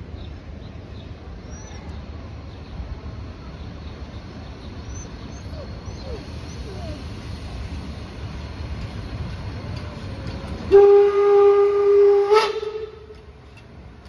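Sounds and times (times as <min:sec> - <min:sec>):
low rumble of train approaching: 0:00.0 - 0:14.0
steam whistle blast: 0:10.7 - 0:13.0.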